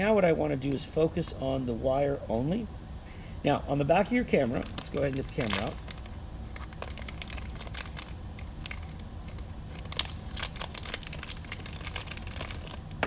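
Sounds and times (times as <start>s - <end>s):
plastic bag crinkling: 4.5s - 13.0s.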